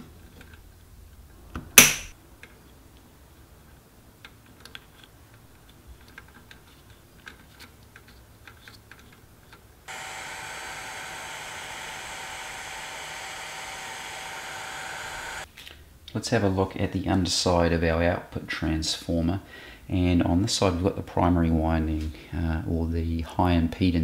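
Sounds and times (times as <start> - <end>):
heat gun blowing with whine: 9.9 - 15.5.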